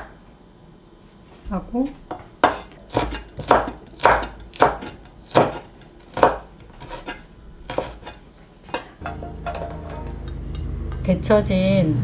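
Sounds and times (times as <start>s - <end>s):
knife chopping on wooden board: 2.1s - 8.8s.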